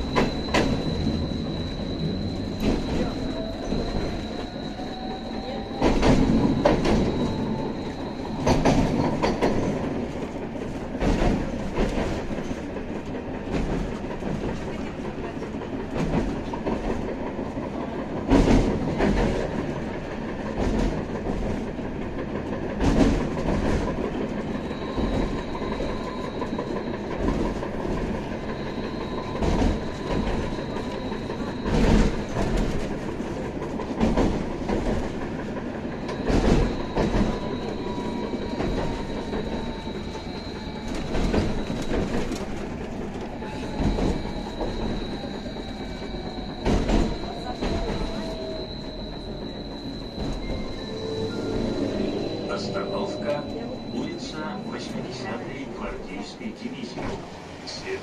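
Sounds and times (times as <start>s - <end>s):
tram running rumble: 0.0s - 58.0s
thin high whine: 48.2s - 55.4s
lower whine falling in pitch: 48.6s - 54.8s.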